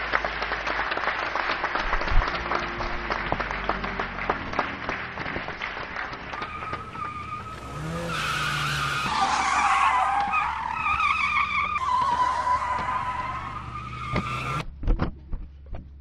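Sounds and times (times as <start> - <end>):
car engine running: 3.1 - 16.0
tyres squealing: 6.4 - 14.6.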